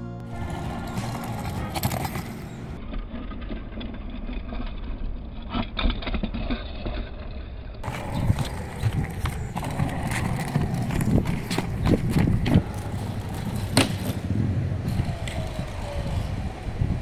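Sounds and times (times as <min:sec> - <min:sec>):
wind rumbling on microphone: 0:07.8 - 0:17.0.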